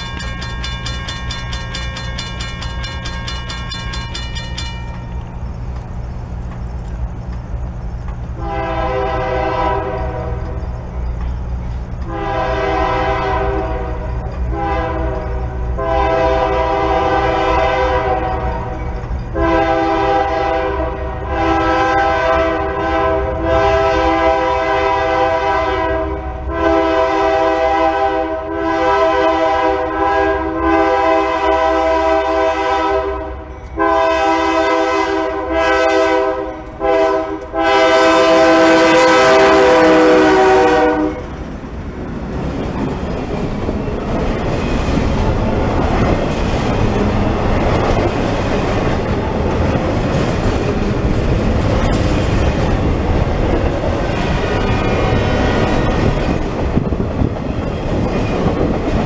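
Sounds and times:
low rumble of train: 0:00.0 - 0:59.0
locomotive air horn blasts: 0:08.4 - 0:10.5, 0:12.0 - 0:18.7, 0:19.3 - 0:41.3.

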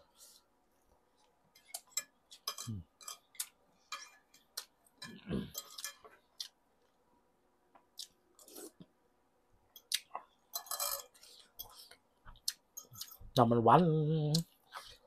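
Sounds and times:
person chewing: 0:04.4 - 0:06.9, 0:07.8 - 0:08.9, 0:09.7 - 0:10.5, 0:11.2 - 0:13.2, 0:14.3 - 0:15.0
cutlery scraping ceramic plate: 0:10.5 - 0:11.7.

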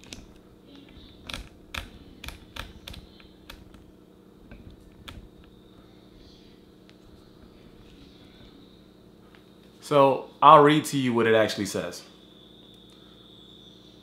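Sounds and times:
sharp clicks and taps: 0:00.0 - 0:03.8
steady low hum: 0:00.0 - 0:14.0.

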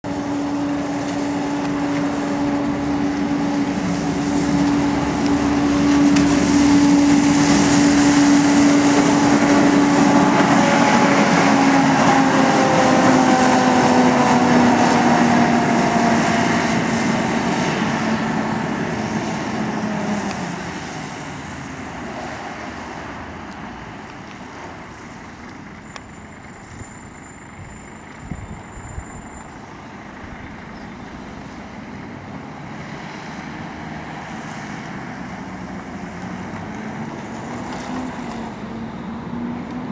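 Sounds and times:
diesel engine: 0:00.0 - 0:39.9
road noise: 0:00.0 - 0:39.9
bus cooling fan whine: 0:00.1 - 0:21.6.

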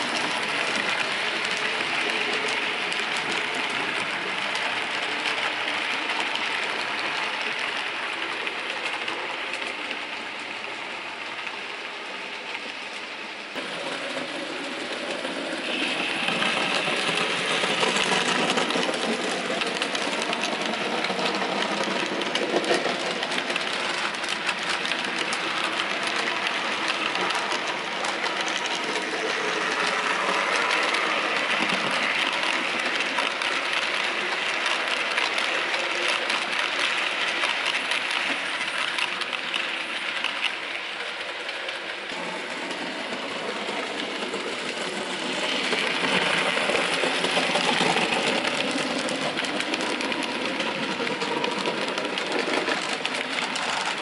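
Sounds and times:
wheels clicking over track: 0:00.0 - 0:54.0.

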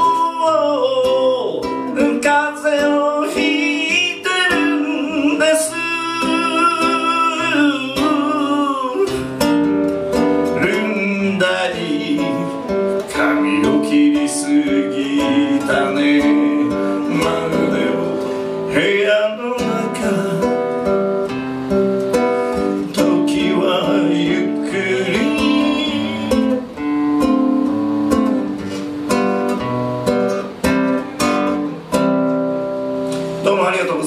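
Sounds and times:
man singing: 0:00.0 - 0:09.6, 0:10.4 - 0:21.2, 0:22.5 - 0:26.8, 0:33.4 - 0:34.0
classical guitar: 0:00.0 - 0:34.0.

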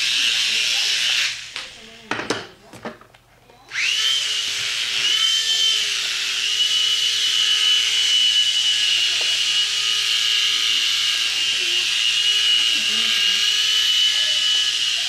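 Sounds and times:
small electric rotor motor whine: 0:00.0 - 0:01.9, 0:03.7 - 0:15.0.

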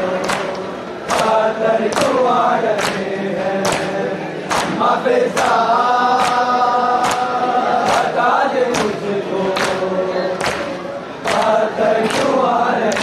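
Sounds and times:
men chanting in unison: 0:00.0 - 0:13.0
hands slapping chests: 0:00.2 - 0:02.2, 0:03.6 - 0:05.6, 0:06.2 - 0:08.1, 0:08.7 - 0:09.0, 0:10.4 - 0:13.0.

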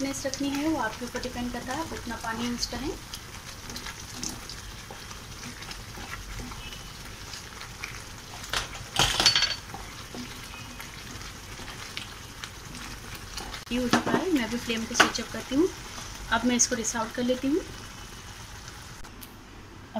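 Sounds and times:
gravy sizzling and bubbling: 0:00.0 - 0:19.1
spatula scraping pan: 0:03.5 - 0:09.0, 0:09.6 - 0:12.1.

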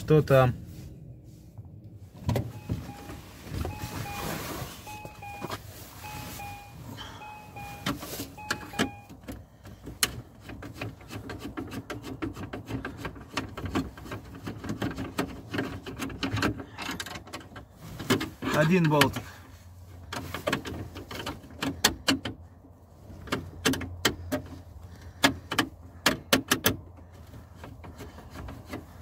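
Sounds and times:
electronic two-note beep: 0:04.9 - 0:09.1.

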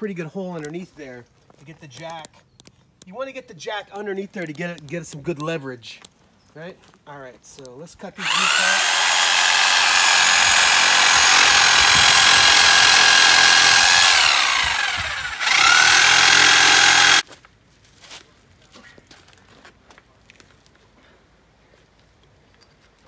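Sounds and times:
electric saw cutting roots: 0:08.2 - 0:17.2.

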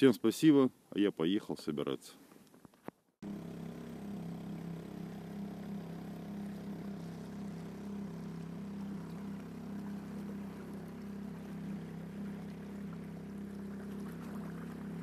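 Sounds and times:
outboard motor running: 0:03.2 - 0:15.0
water rushing along hull: 0:03.2 - 0:15.0.

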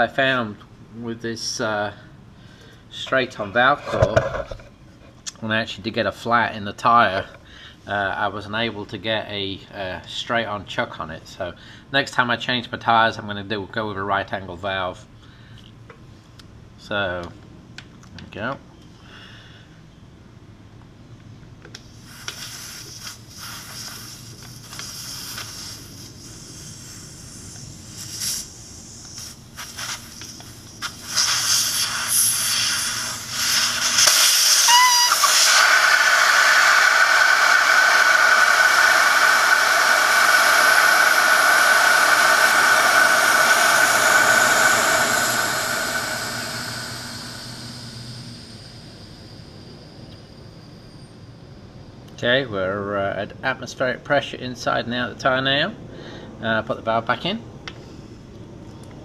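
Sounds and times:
air hissing from tire valve: 0:21.8 - 0:51.4
rising whistle: 0:33.1 - 0:51.8.

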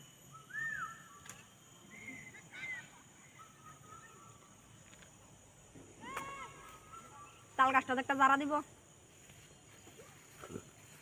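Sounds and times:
faint whistled bird calls: 0:00.0 - 0:04.7, 0:06.0 - 0:07.6.

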